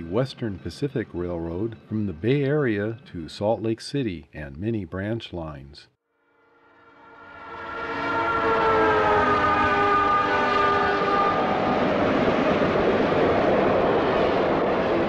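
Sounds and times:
locomotive air horn: 6.4s - 12.5s.

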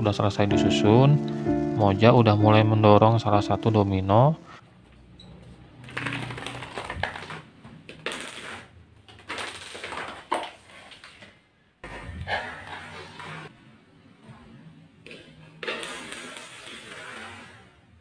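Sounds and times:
dominoes toppling on tiles: 8.0s - 11.2s.

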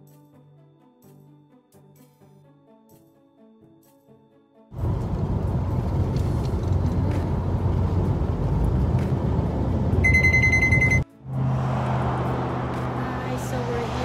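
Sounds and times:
engine and tyre rumble: 4.8s - 14.0s
high electronic beep: 10.0s - 11.0s.

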